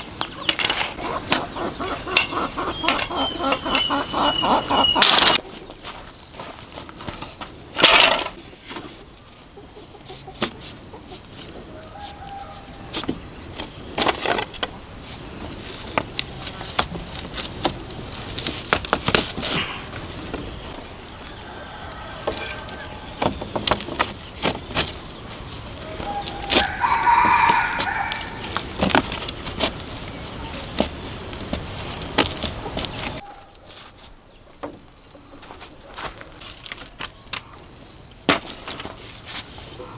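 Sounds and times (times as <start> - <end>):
bamboo strips clattering: 0.0 - 9.1, 12.9 - 21.4, 22.2 - 37.6, 38.2 - 39.9
footsteps on dirt: 5.4 - 7.7, 24.2 - 37.2
rooster crowing: 11.6 - 12.9, 21.0 - 23.2, 25.8 - 28.5.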